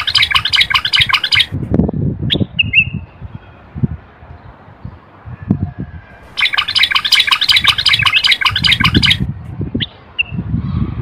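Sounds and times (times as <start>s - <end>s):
bird chirping chatter: 0.0s - 1.6s, 6.3s - 10.4s.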